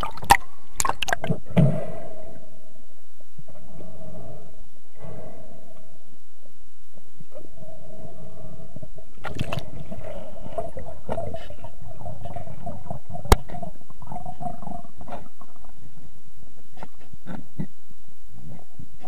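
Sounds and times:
muffled underwater gurgling: 0:07.0 - 0:17.8.

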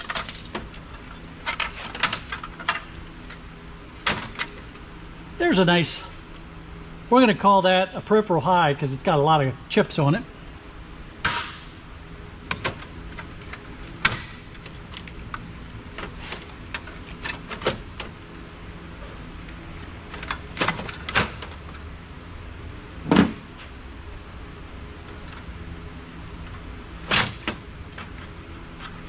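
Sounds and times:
metal parts and tools clinking: 0:00.0 - 0:03.4
steady low hum: 0:00.0 - 0:29.0.

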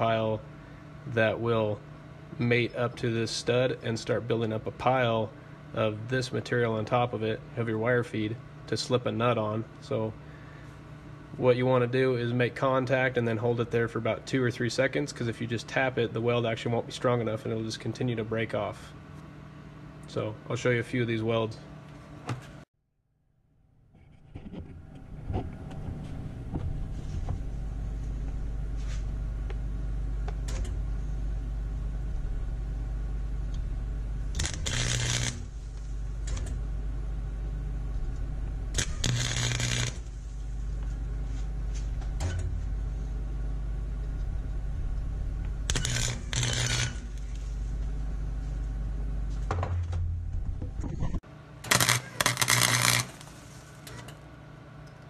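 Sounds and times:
steady low hum: 0:00.0 - 0:22.7, 0:23.3 - 0:55.0
welder arc crackling: 0:33.4 - 0:36.9, 0:37.9 - 0:42.1, 0:44.0 - 0:48.6, 0:51.6 - 0:54.0.

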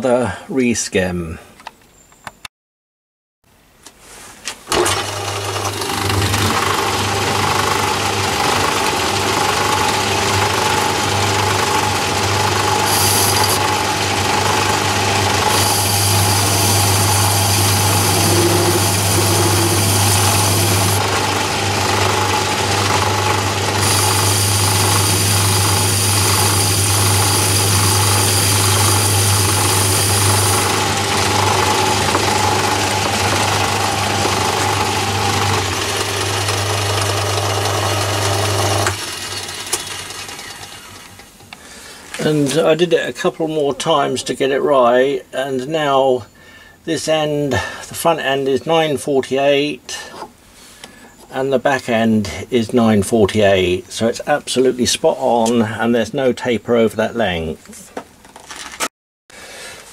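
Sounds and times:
lathe running: 0:04.7 - 0:41.2
high whine: 0:15.4 - 0:22.8.

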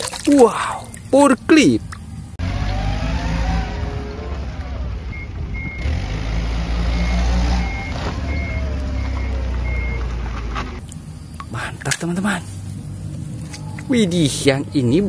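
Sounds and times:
forklift engine running: 0:02.1 - 0:11.2
reversing alarm beeping: 0:02.8 - 0:06.0, 0:06.8 - 0:10.1.

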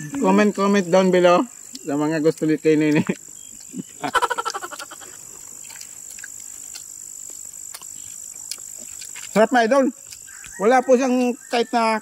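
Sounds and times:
high-pitched insect drone: 0:00.0 - 0:12.0
rapidly pulsing animal call: 0:03.9 - 0:05.7.

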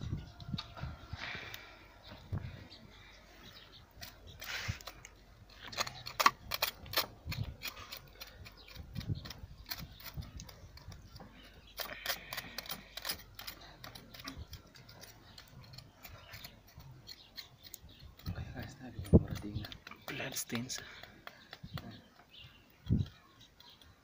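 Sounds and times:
knife cutting and scraping: 0:03.9 - 0:20.1.

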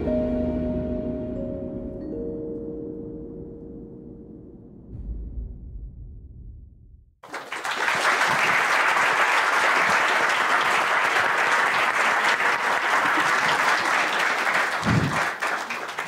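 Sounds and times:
low rumble: 0:04.3 - 0:07.2
audience applause: 0:07.2 - 0:16.0.

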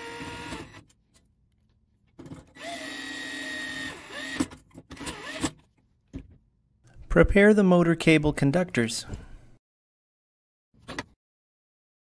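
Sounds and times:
electric screwdriver motor whine: 0:02.6 - 0:04.4.

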